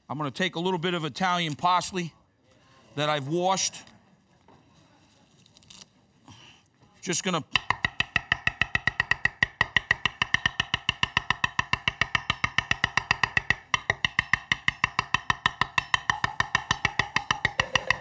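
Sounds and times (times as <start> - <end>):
knife chopping on wooden board: 7.6 - 18.0.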